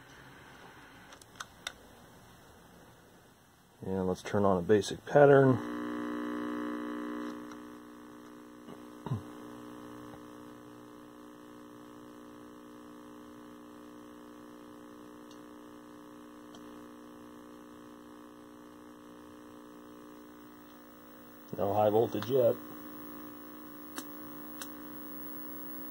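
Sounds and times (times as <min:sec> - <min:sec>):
television mains hum: 0:18.1 - 0:25.9
click: 0:23.9 - 0:24.8.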